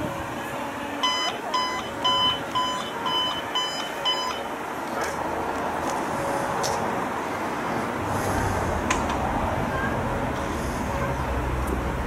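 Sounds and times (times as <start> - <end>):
street noise: 0.0 - 12.0
short high electronic beeps: 1.0 - 4.5.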